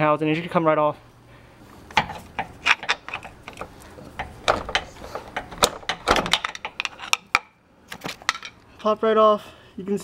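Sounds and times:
crowbar metallic clicks and knocks: 1.9 - 8.6.

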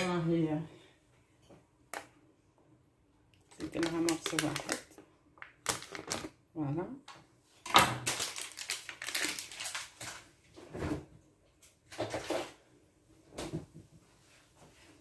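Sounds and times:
crackling rustles and clicks: 3.5 - 6.3, 8.0 - 10.3.

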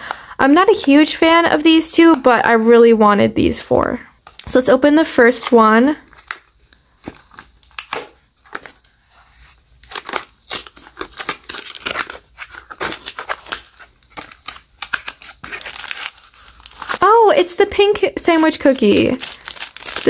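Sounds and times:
cardboard box tearing and crinkling: 7.0 - 17.2, 18.8 - 20.0.

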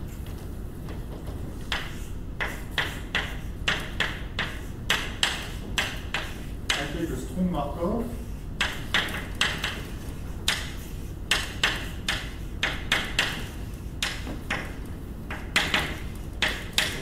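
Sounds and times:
chalk tapping and scratching: 0.9 - 7.0, 8.3 - 17.0.

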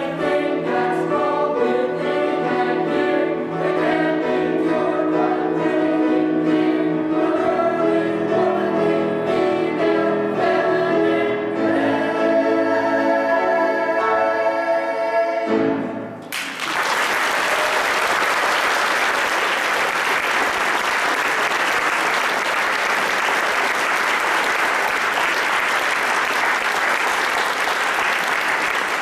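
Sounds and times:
group of singers holding a note: 0.0 - 16.0
audience applause: 16.3 - 29.0.

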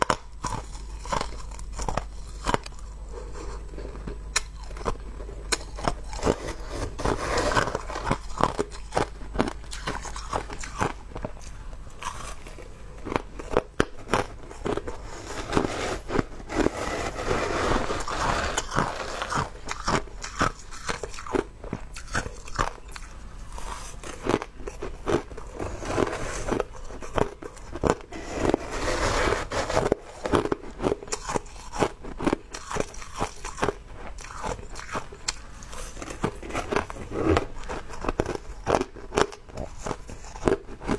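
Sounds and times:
crushed ice being chewed: 0.0 - 40.9.

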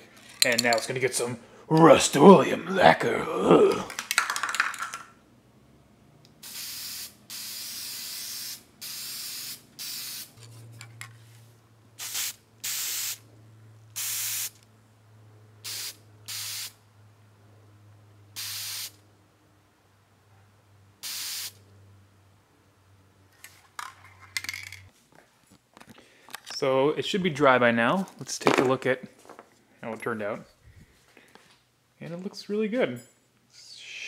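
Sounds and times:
aerosol can spraying: 6.4 - 10.4, 12.0 - 13.2, 14.0 - 14.6, 15.6 - 16.8, 18.4 - 19.0, 21.0 - 21.6.

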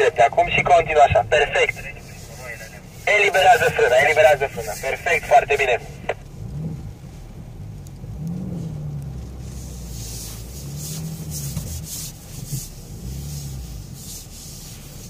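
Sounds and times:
car engine rumbling: 0.0 - 15.0
tyres hissing through mud: 9.3 - 15.0.

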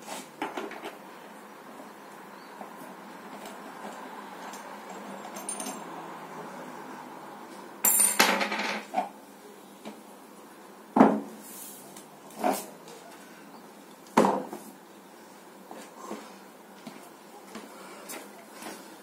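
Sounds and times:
metal kettlebell parts clinking: 3.8 - 6.0.

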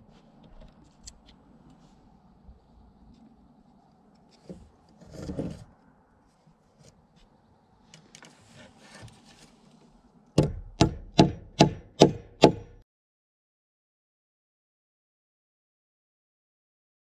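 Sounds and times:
handling and rustling: 3.0 - 10.0
hammer tapping nail: 10.4 - 12.8.

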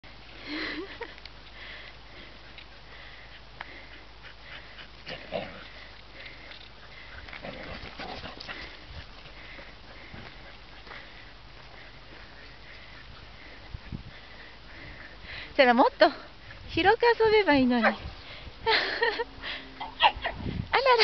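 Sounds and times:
light ticks: 1.0 - 1.6
wind on microphone: 13.6 - 15.2, 20.1 - 20.8.

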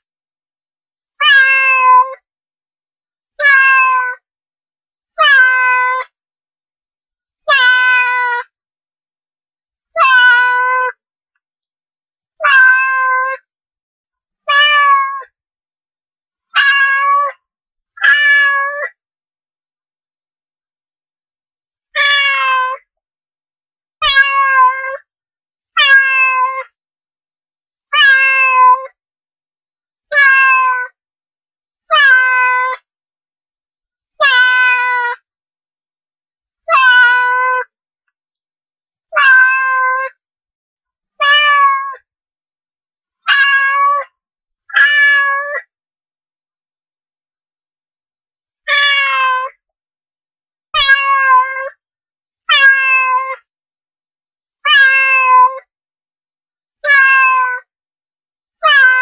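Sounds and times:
cat meowing: 1.2 - 2.2, 3.4 - 4.2, 7.5 - 8.4, 10.0 - 11.0, 12.4 - 13.4, 14.5 - 15.3, 16.6 - 17.4, 18.0 - 19.0, 22.0 - 22.8, 24.0 - 25.0, 25.8 - 26.7, 27.9 - 28.9, 30.1 - 31.0, 31.9 - 32.8, 34.2 - 35.2, 36.7 - 37.7, 39.1 - 40.2, 41.2 - 42.0, 43.2 - 44.1, 44.7 - 45.7, 48.7 - 49.6, 50.8 - 51.8, 52.5 - 53.4, 54.6 - 55.7, 56.8 - 57.6, 58.6 - 59.0.

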